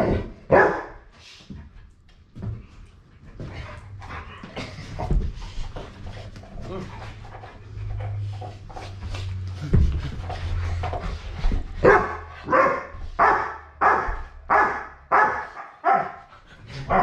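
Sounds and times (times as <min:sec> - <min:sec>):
large dog barking: 0:00.0 - 0:01.0, 0:11.8 - 0:16.3.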